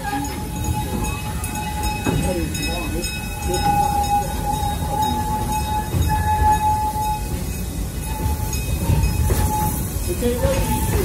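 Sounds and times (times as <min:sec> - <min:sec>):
train cars rumbling on track: 0:00.0 - 0:11.0.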